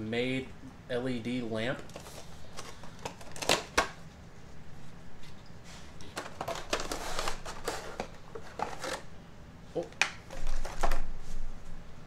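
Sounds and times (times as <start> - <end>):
packaging rustling: 1.9 - 4.0, 6.0 - 9.1, 10.2 - 11.2.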